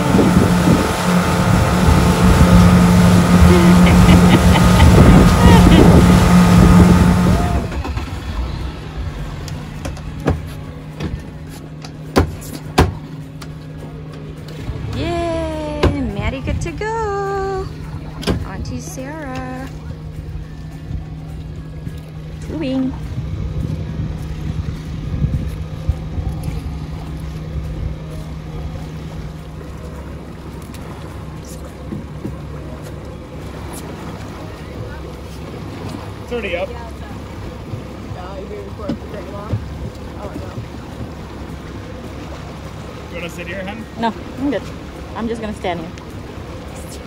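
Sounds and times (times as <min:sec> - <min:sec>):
wind buffeting microphone: 0:00.0 - 0:11.5, 0:19.8 - 0:29.2
boat motor humming: 0:00.0 - 0:47.0.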